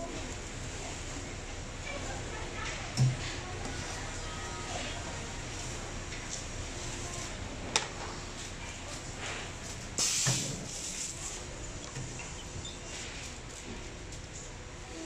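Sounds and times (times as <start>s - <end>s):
workshop hum: 0.0s - 15.0s
press hiss and low thud: 10.0s - 10.9s.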